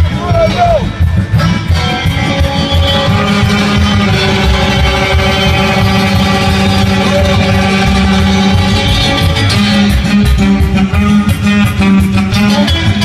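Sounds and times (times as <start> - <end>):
electric guitar: 0.0 - 13.0
live folk band playing: 0.0 - 13.0
pulsing low beat: 0.0 - 13.0.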